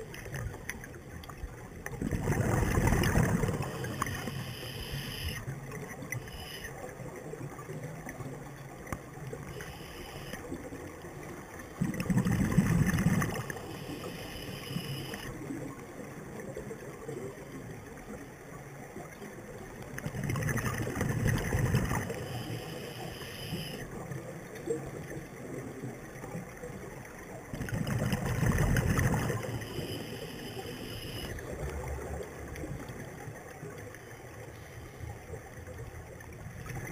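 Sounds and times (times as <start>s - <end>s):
steady underwater hiss: 0.0s - 36.9s
diver's bubbles rumbling underwater: 1.4s - 4.6s, 11.4s - 14.3s, 19.8s - 23.2s, 23.8s - 33.8s.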